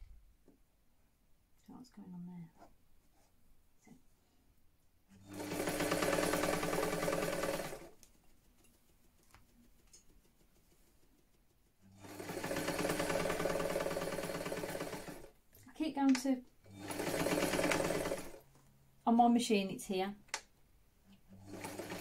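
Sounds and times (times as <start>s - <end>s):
sewing machine stitching: 5.2s - 8.0s, 11.8s - 15.4s, 16.7s - 18.4s, 21.3s - 22.0s.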